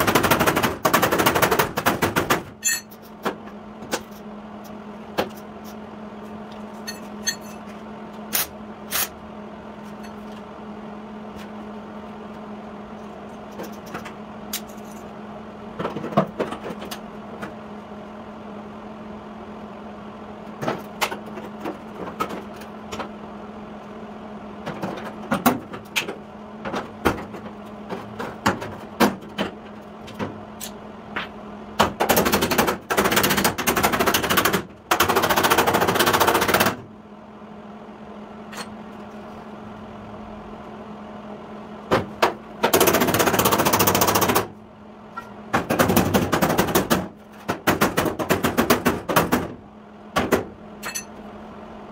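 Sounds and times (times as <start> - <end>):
steady low hum: 0.0 - 51.9.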